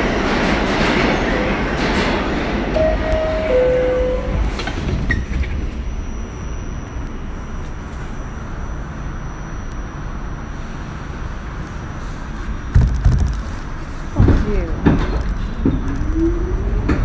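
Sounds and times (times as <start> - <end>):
loud train clunks: 0.0 - 5.7, 14.1 - 17.0
subway car rumble and hum: 0.0 - 17.0
faint high whine: 2.8 - 12.7.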